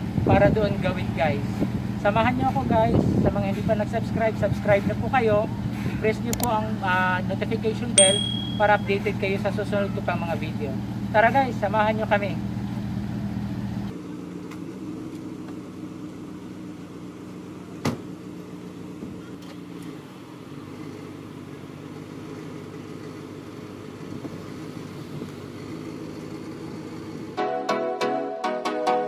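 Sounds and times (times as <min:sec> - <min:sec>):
pickup truck engine humming: 0:00.0 - 0:27.4
car door shutting: 0:17.8 - 0:18.1
music: 0:27.4 - 0:29.0.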